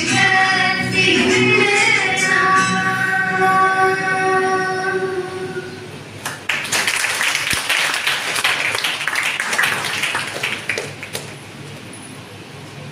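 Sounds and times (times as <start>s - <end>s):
audience applauding: 6.2s - 11.6s.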